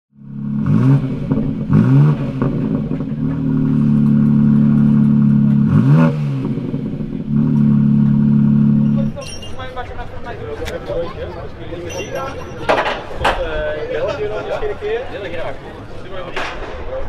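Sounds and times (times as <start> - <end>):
car engine revving: 0.2 - 9.2.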